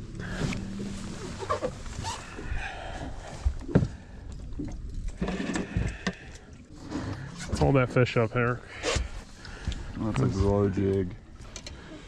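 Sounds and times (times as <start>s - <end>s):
knocks and scrapes on boat deck: 0.2s - 2.4s, 5.1s - 8.2s, 8.8s - 9.4s.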